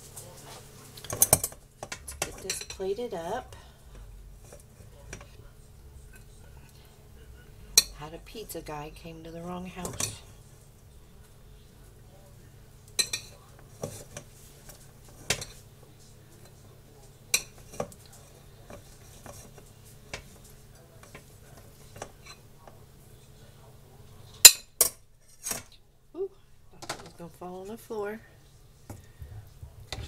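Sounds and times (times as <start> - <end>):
spoon and dishes clinking on saucepan: 1.0 - 2.9, 7.8 - 8.0, 12.9 - 14.3, 15.1 - 15.6, 17.3 - 18.1
steady low hum: 25.8 - 30.0.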